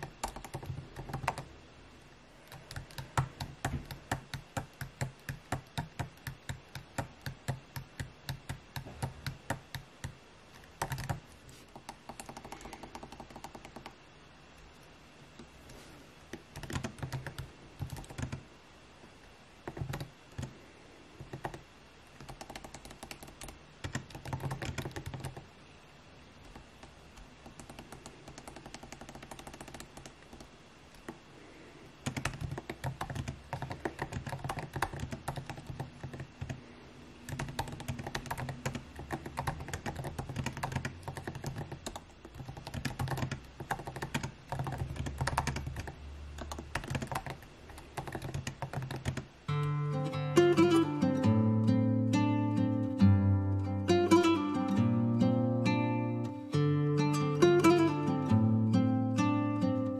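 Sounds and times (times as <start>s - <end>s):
laptop keyboard typing: 0.0s - 1.6s, 2.4s - 14.0s, 16.3s - 18.4s, 19.6s - 20.6s, 21.2s - 25.5s, 26.4s - 31.2s, 32.0s - 49.3s.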